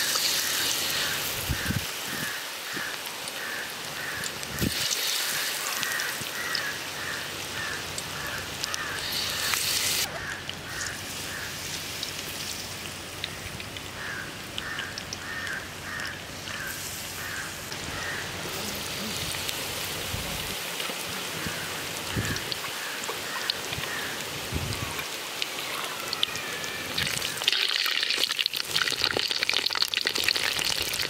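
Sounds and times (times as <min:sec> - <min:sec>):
batter deep-frying in oil: 0:00.0 - 0:31.0.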